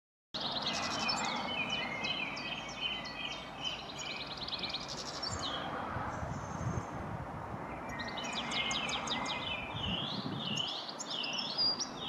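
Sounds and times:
goldfinch twittering: 0:00.4 - 0:05.7, 0:07.8 - 0:12.0.

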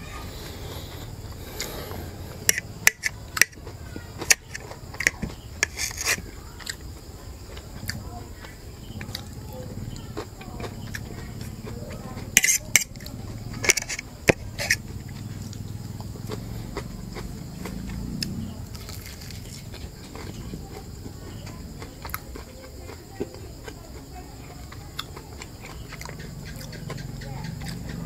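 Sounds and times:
fork scraping ceramic plate: 0:00.8 - 0:03.6, 0:04.2 - 0:06.2, 0:12.3 - 0:14.9.

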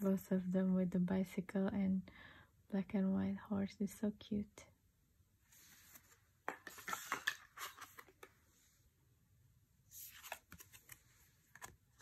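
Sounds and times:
cards sliding: 0:05.8 - 0:08.3, 0:10.0 - 0:11.8.

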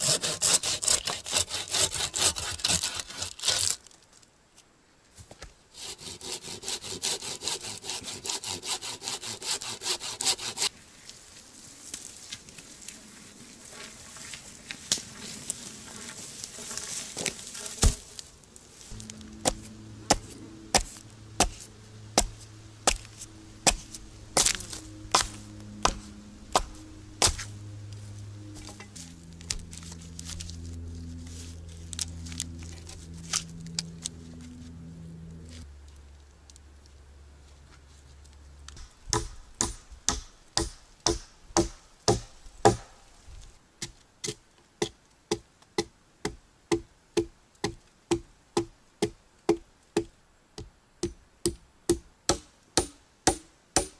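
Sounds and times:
hand saw cutting log: 0:00.0 - 0:03.9, 0:05.7 - 0:10.8, 0:18.9 - 0:27.5, 0:38.8 - 0:43.0, 0:51.9 - 0:53.9.

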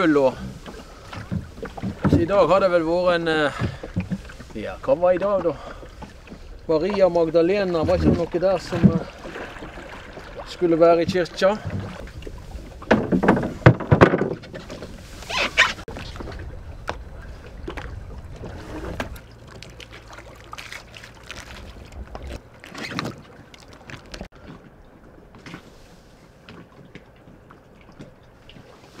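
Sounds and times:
oars knocking against rowboat: 0:00.0 - 0:20.2.

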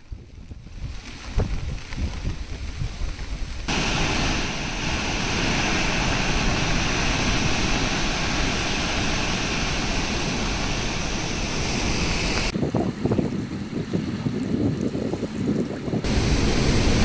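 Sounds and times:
floodwater gushing through gates: 0:03.7 - 0:12.5, 0:16.1 - 0:17.0.

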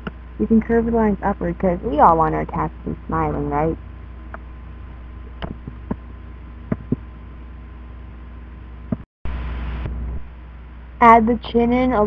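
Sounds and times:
electrical hum and hiss: 0:00.0 - 0:12.0.

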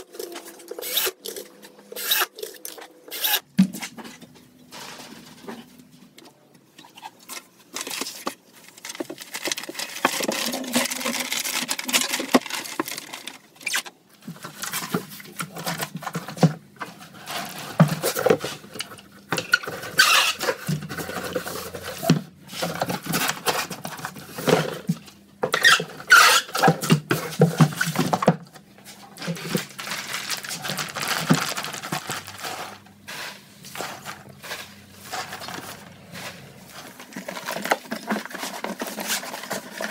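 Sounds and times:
paper and plastic rustling: 0:02.3 - 0:39.9
packing peanuts rattling: 0:07.7 - 0:13.8, 0:29.2 - 0:39.9.

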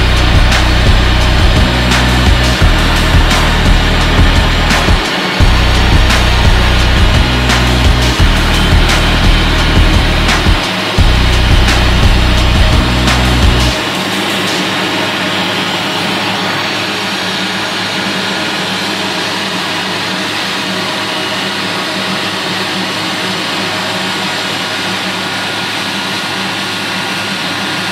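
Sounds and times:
low engine hum: 0:00.0 - 0:13.8
jet engines rushing: 0:00.0 - 0:27.8.

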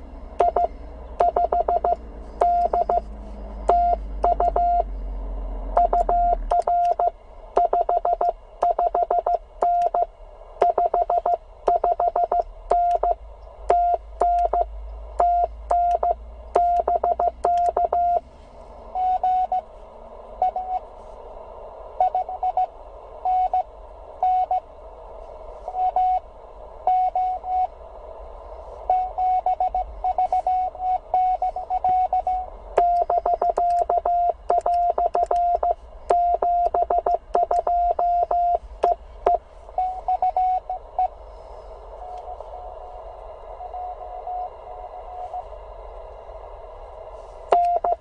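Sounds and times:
receiver hiss: 0:00.0 - 0:48.0
faint morse code signal: 0:00.4 - 0:04.9, 0:05.7 - 0:18.2, 0:19.0 - 0:19.7, 0:20.4 - 0:20.9, 0:22.0 - 0:24.7, 0:25.7 - 0:27.8, 0:28.9 - 0:41.2, 0:47.5 - 0:48.0
morse code tones: 0:00.4 - 0:04.9, 0:05.8 - 0:18.2, 0:19.0 - 0:19.7, 0:23.3 - 0:24.6, 0:26.9 - 0:27.7, 0:28.9 - 0:41.1, 0:47.5 - 0:48.0
keying clicks: 0:15.2 - 0:18.0, 0:32.8 - 0:39.4.

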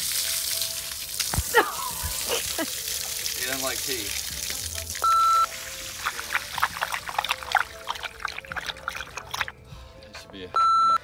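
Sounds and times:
water splattering onto concrete: 0:00.0 - 0:09.6
short electronic beep: 0:05.0 - 0:05.5, 0:10.6 - 0:11.0.

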